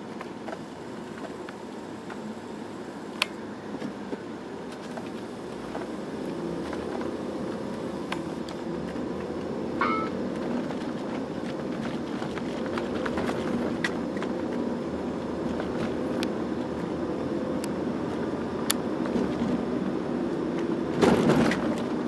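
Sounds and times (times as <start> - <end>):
car engine and road noise: 0.0 - 22.0
short high tone: 9.8 - 10.2.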